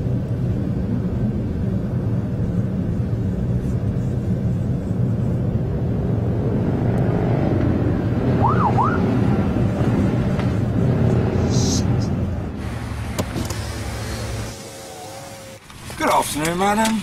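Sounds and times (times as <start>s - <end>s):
car road and engine noise: 0.0s - 17.0s
siren wailing: 8.3s - 9.4s.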